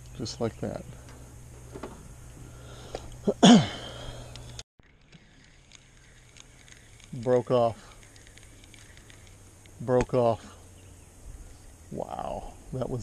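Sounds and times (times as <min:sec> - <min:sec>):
man's breathy vocal burst: 0:02.5 - 0:04.3
faint ticks: 0:04.2 - 0:10.1.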